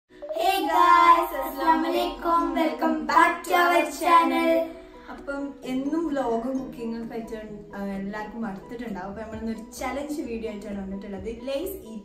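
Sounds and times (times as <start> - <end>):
girl and woman singing: 0.2 - 4.8.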